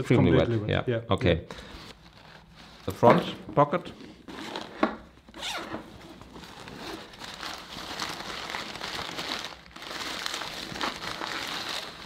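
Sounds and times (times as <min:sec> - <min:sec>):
newspaper crinkling and rustling: 0:06.0 - 0:12.0.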